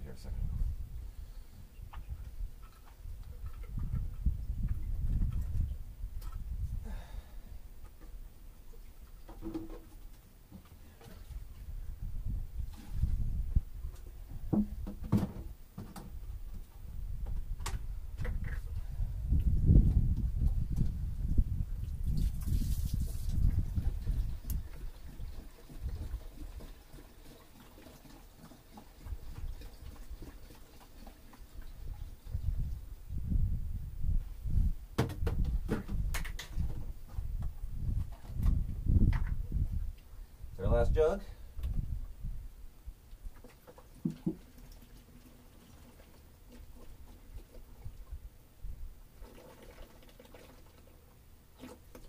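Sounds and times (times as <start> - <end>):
liquid glugging and trickling: 21.8 - 32.7, 43.3 - 48.3, 49.1 - 52.0.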